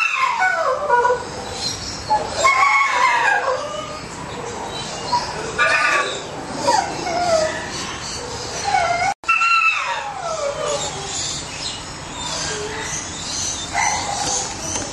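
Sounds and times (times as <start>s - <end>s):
dogs whining and howling: 0.0s - 14.9s.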